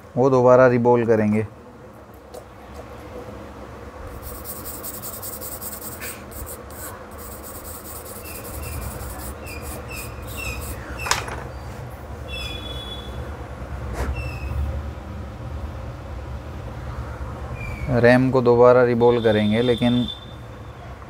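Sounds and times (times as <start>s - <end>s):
bench equipment humming: 4.0s - 11.0s.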